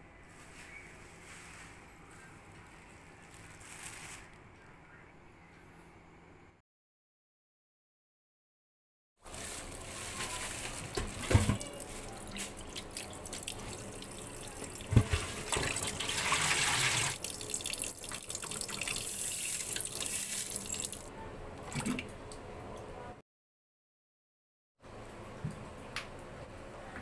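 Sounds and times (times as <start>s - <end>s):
water splashing in a steel pot: 10.7s - 22.2s.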